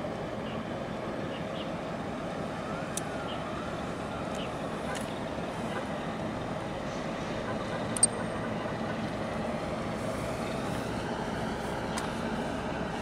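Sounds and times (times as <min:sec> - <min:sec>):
low engine rumble: 0:00.0 - 0:13.0
sharp click: 0:08.0 - 0:08.2.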